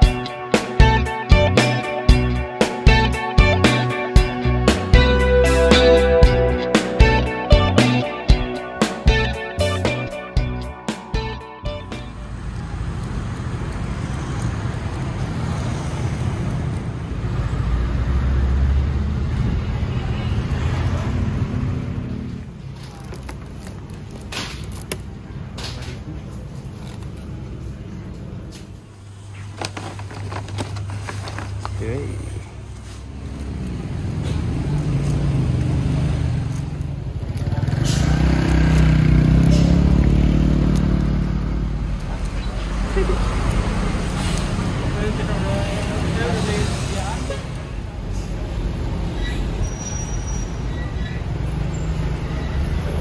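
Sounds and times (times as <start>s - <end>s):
vehicle engine running: 33.1s - 47.0s.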